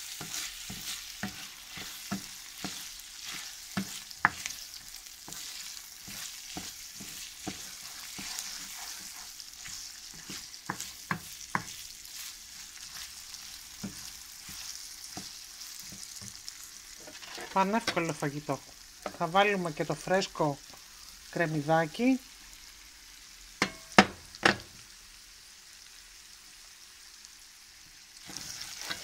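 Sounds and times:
wooden spoon scraping a pan: 0.0s - 18.2s, 28.2s - 29.0s
rice and onion sizzling in oil: 0.0s - 29.0s.

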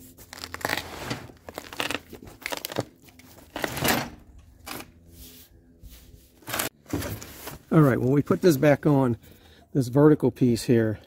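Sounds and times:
cardboard scraping over concrete: 0.0s - 3.8s.

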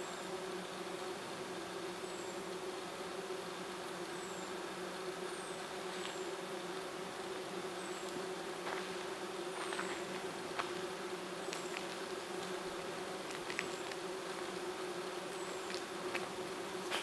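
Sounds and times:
hum of bees and insects: 0.0s - 17.0s
faint high whistles and ticks: 11.4s - 12.6s.

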